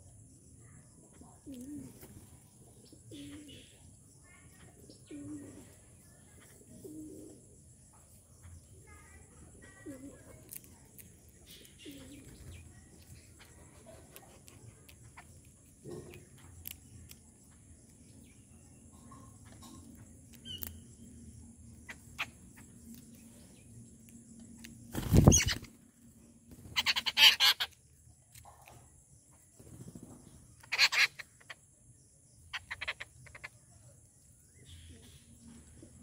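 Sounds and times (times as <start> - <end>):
birds pecking clicks: 10.2 - 18.4, 19.4 - 25.7
harsh rapid bird chattering: 21.7 - 22.9, 25.0 - 25.7, 26.6 - 27.8, 30.6 - 31.6, 32.5 - 33.7
flutter of wings: 24.7 - 27.6, 29.5 - 31.0.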